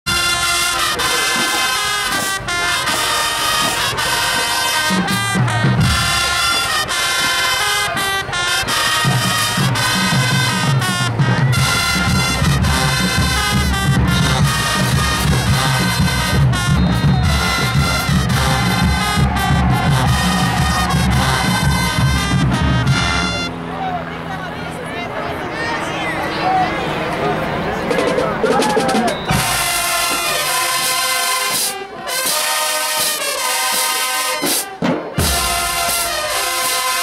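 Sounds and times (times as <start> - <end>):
marching band playing: 0.0 - 37.0
sousaphone bass line: 11.1 - 23.5, 27.8 - 30.1.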